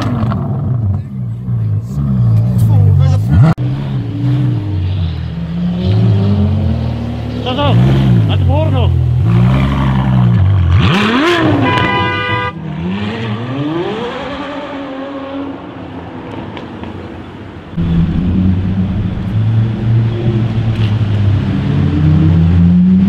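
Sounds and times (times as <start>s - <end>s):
car engine low drone: 0.0s - 11.7s, 17.1s - 23.0s
sports car engine revving: 0.0s - 15.6s
car horn blast: 11.1s - 12.6s.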